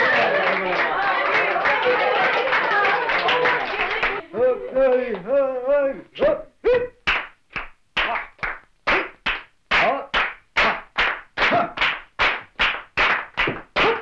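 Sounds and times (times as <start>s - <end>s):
hand claps: 0.0s - 4.2s, 7.0s - 14.0s.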